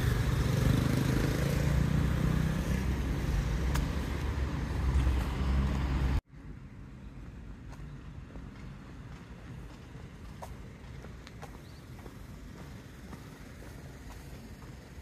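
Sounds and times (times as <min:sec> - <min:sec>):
faint outdoor background: 0:00.0 - 0:15.0
vehicle engine rumbling: 0:00.0 - 0:15.0.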